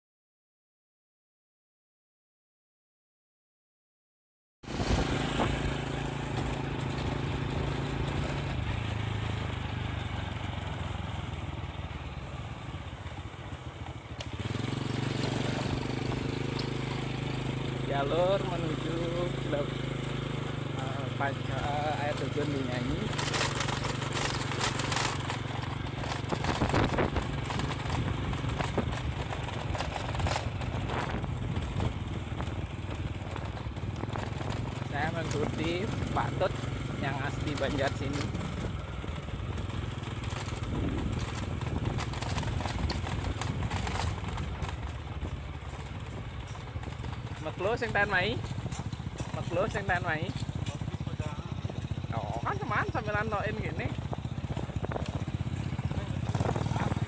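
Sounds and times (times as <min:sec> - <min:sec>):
motor scooter engine running: 0:04.6 - 0:57.0
wind noise: 0:04.7 - 0:05.8, 0:26.3 - 0:29.3, 0:30.7 - 0:34.3, 0:40.6 - 0:45.4, 0:54.5 - 0:55.3, 0:56.2 - 0:57.0.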